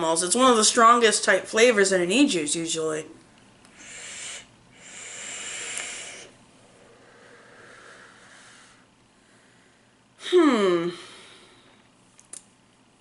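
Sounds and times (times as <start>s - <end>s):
hissing vape draws: 3.8s - 6.3s
soft exhale: 3.8s - 9.9s.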